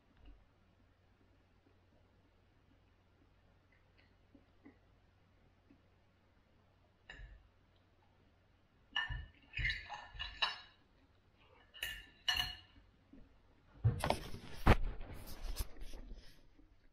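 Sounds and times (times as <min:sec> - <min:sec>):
fork clinking on ceramic plate: 0:09.0 - 0:10.8, 0:11.6 - 0:12.8.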